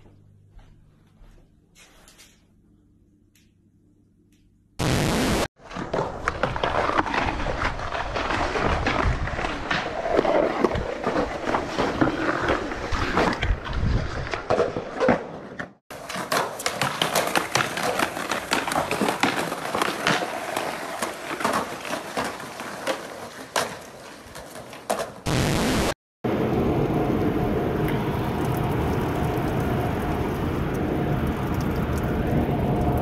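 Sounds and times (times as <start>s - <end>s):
skateboard wheels rolling: 5.6s - 25.3s
skateboards clacking: 15.9s - 25.3s.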